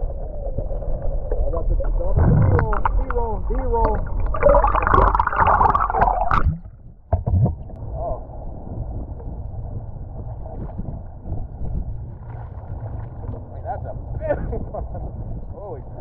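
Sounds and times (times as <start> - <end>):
water gurgling underwater: 0.0 - 7.8
wind rushing: 0.0 - 12.2.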